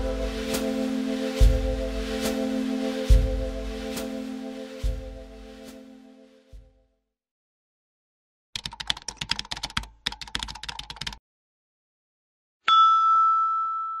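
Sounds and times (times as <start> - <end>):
bright ringing tone: 12.7 - 14.0.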